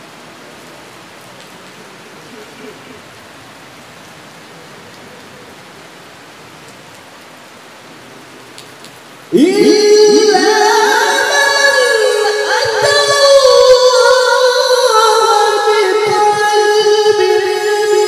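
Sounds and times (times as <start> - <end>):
steady background hiss: 0.0 - 18.0
person chanting melodically: 9.3 - 18.0.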